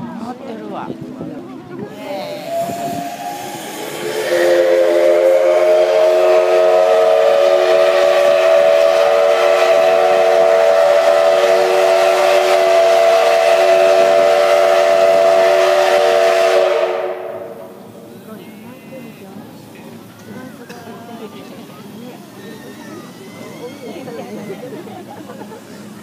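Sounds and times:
steam whistle blast: 0:02.3 - 0:17.8.

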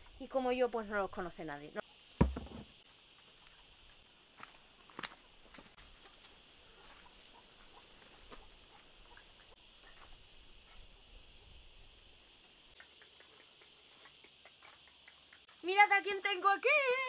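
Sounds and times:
insects droning: 0:00.0 - 0:17.0
faint ticks and rustles: 0:02.8 - 0:15.8.

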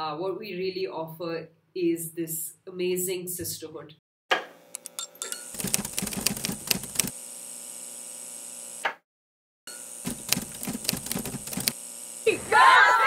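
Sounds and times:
typewriter key clacks: 0:05.6 - 0:07.1, 0:10.1 - 0:11.7.

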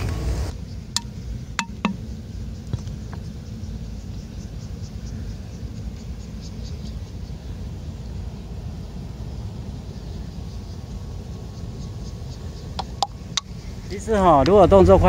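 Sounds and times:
insect chirps: 0:00.5 - 0:14.5
bottle dipped in water plopping: 0:01.0 - 0:02.0.

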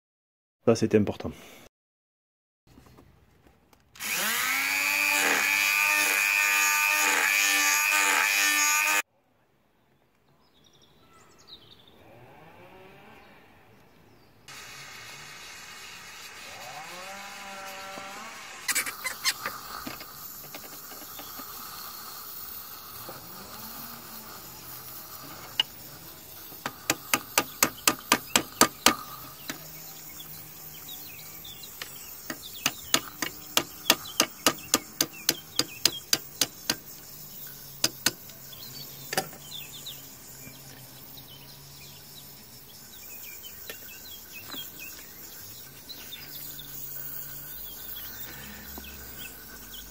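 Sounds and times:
gas torch hissing: 0:14.5 - 0:49.9.

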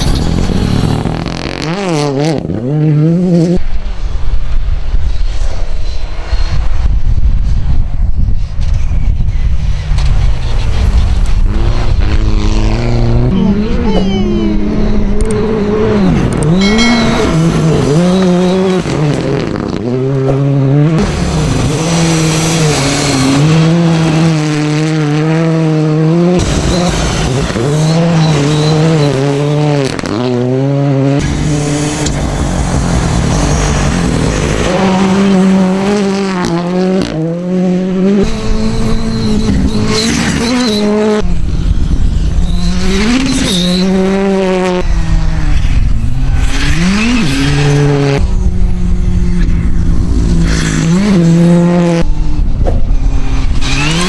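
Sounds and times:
rally car engines revving: 0:00.0 - 0:07.0, 0:09.6 - 0:54.0.

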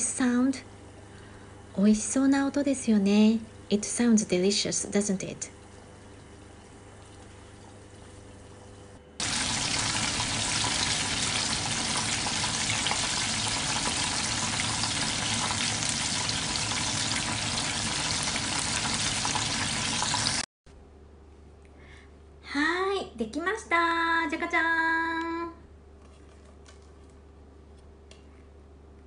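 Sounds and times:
chicken deep-frying in oil: 0:09.2 - 0:20.5.

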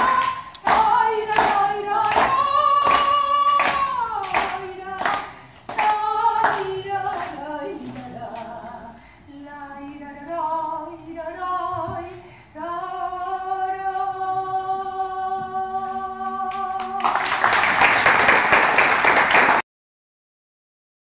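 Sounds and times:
woman singing unaccompanied: 0:00.0 - 0:17.5
audience applause: 0:16.8 - 0:19.6.

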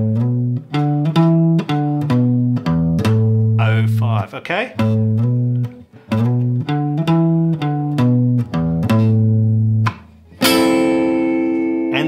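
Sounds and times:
guitar riff with slides: 0:00.0 - 0:12.0
guitar chord strummed: 0:10.4 - 0:12.0.

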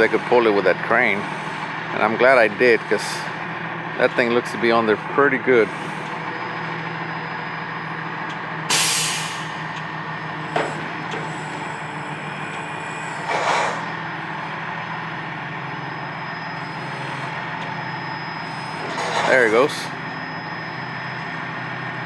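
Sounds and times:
diesel engine running: 0:00.0 - 0:22.0
hiss of released air: 0:08.7 - 0:09.5.

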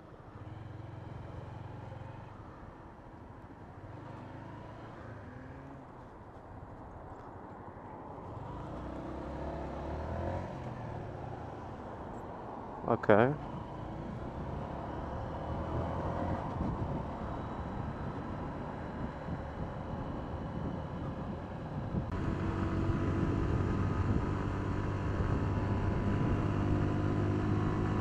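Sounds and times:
motorcycle engine drone: 0:12.9 - 0:28.0.

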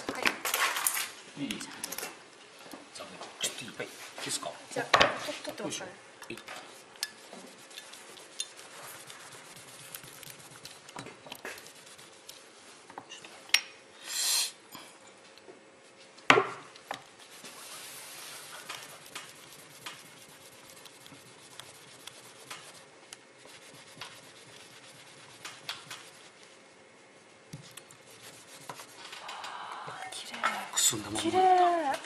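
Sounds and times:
paper towel rubbing and scraping: 0:07.2 - 0:10.8, 0:11.5 - 0:12.6, 0:17.1 - 0:26.6, 0:27.2 - 0:29.1
brief hiss: 0:14.0 - 0:14.6.

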